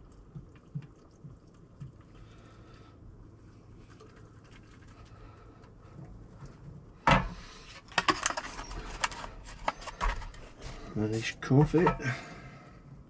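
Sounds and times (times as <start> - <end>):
kettle clanking on metal grate: 11.6 - 12.3.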